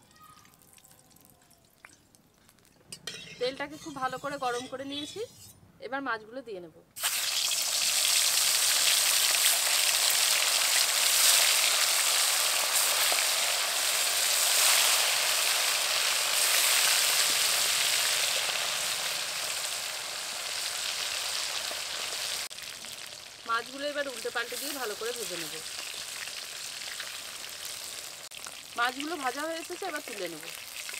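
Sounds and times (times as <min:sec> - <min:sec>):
fish sizzling in hot oil: 0:07.0 - 0:30.9.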